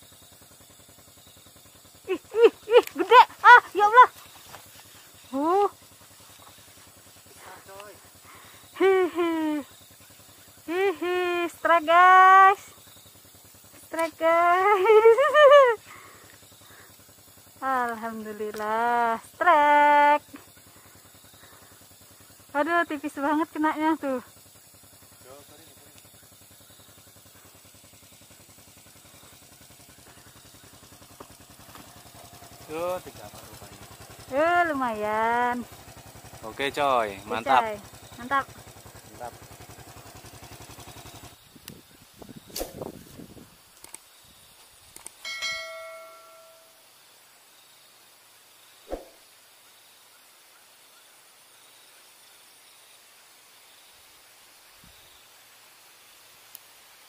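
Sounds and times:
small engine idling: 0:00.0 - 0:47.3
faint outdoor hiss: 0:00.0 - 0:57.0
high insect drone: 0:00.0 - 0:57.0
light click: 0:43.8 - 0:44.0
sharp thump: 0:48.9 - 0:49.2.

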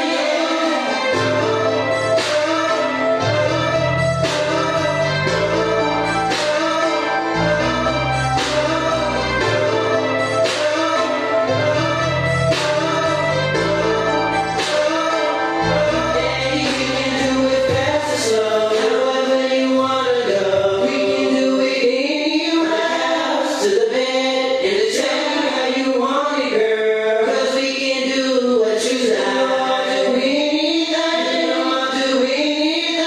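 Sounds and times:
music with singing voice: 0:00.0 - 0:33.0
deep bass: 0:03.1 - 0:06.6, 0:07.2 - 0:10.7, 0:11.3 - 0:14.7, 0:15.5 - 0:18.4.

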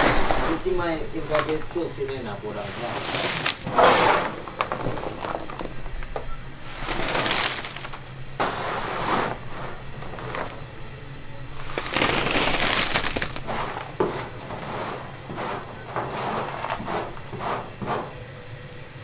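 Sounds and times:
metal scoop scraping steel table: 0:02.7 - 0:04.4, 0:06.7 - 0:10.5, 0:13.4 - 0:18.1.

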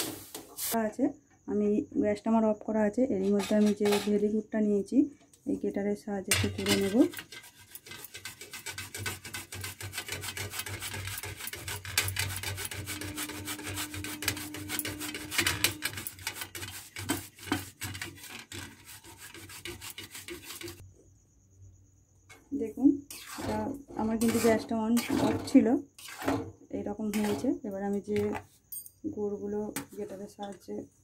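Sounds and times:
jaggery scraping on metal grater: 0:03.2 - 0:04.2, 0:06.4 - 0:20.8, 0:23.1 - 0:26.5, 0:27.1 - 0:27.6.

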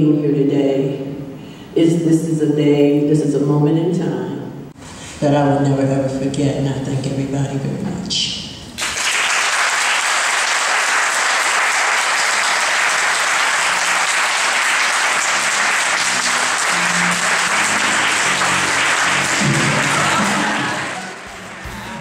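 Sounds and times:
crowd applause: 0:08.8 - 0:22.0.

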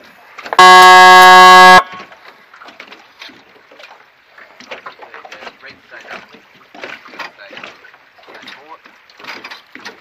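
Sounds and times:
faint water splashing: 0:00.0 - 0:10.0
signal horn blast: 0:00.6 - 0:02.0.

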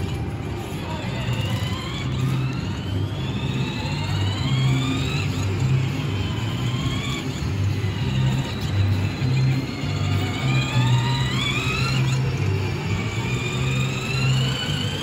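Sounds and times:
electric motors whining: 0:00.0 - 0:15.0.

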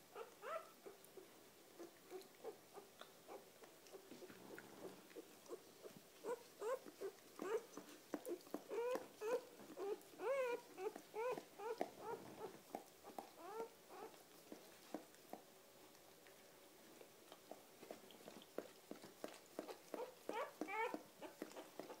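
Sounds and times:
puppy squeaking and crying: 0:00.1 - 0:00.7, 0:06.2 - 0:07.7, 0:08.7 - 0:14.2, 0:19.9 - 0:21.9.

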